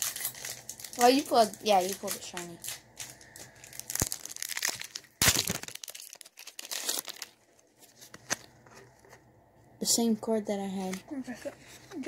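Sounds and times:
foil wrapper crinkling and tearing: 0:00.0 - 0:08.5.

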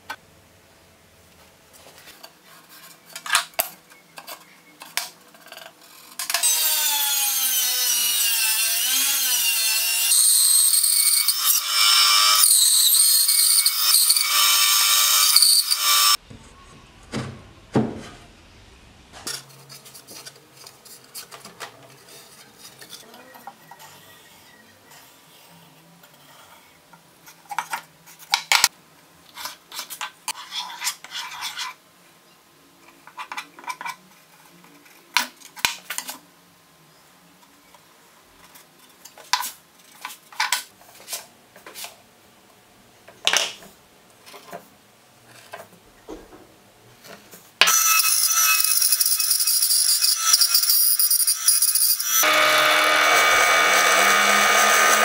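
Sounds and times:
bandsaw cutting plywood: 0:06.4 - 0:16.2, 0:47.6 - 0:55.0.

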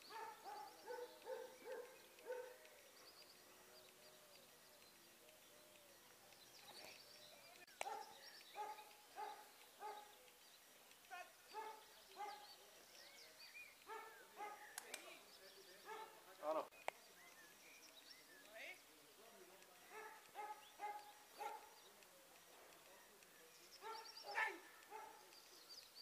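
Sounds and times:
dog barking: 0:00.1 - 0:02.6, 0:07.8 - 0:10.1, 0:11.5 - 0:12.4, 0:13.9 - 0:14.7, 0:15.9 - 0:16.2, 0:19.9 - 0:21.8, 0:23.8 - 0:25.3.

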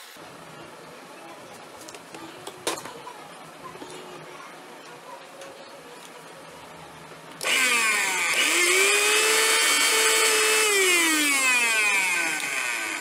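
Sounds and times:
mixer grinder motor whining: 0:07.4 - 0:13.0.

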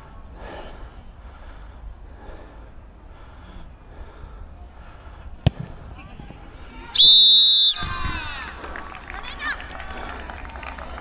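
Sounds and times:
slow breathing close up: 0:00.0 - 0:06.0.

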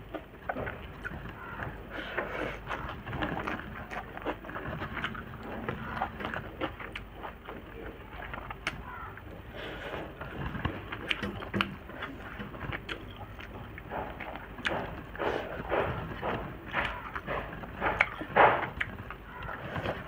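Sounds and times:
chewing and wet mouth clicks: 0:02.6 - 0:08.9, 0:10.4 - 0:15.0, 0:16.7 - 0:20.0.

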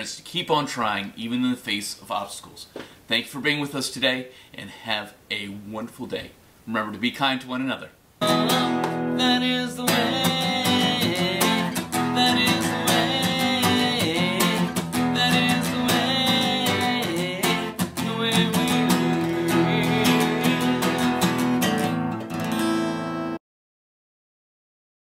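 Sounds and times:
acoustic guitar strumming: 0:08.2 - 0:23.4.

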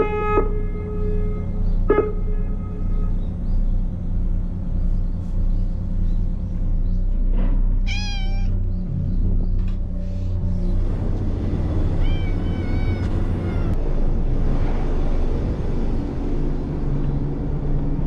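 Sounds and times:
cat meowing: 0:07.8 - 0:08.6, 0:11.9 - 0:13.8.

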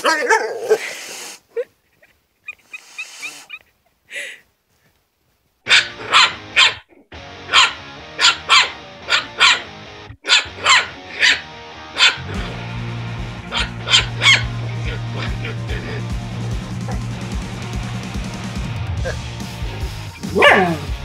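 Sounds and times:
puppy yapping: 0:05.7 - 0:12.3, 0:13.5 - 0:14.5, 0:20.2 - 0:20.9
background music: 0:05.7 - 0:21.0.

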